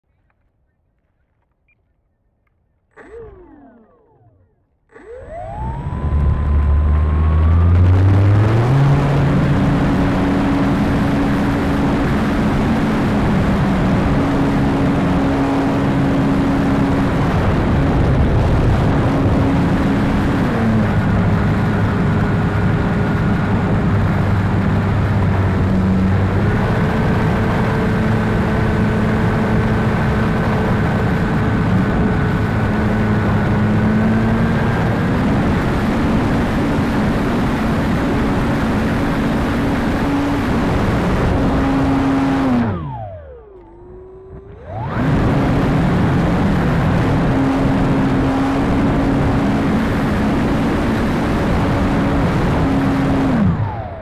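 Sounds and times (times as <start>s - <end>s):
falling pitch blip: 2.9s - 8.8s, 41.3s - 47.0s
electric motor whine: 2.9s - 54.0s
wind rush: 30.3s - 43.0s.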